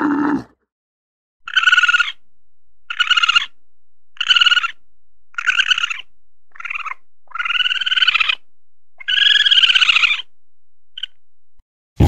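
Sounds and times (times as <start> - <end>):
trilled animal calls: 1.4 - 2.2, 2.9 - 3.6, 4.2 - 8.4, 9.0 - 10.3, 11.0 - 11.2.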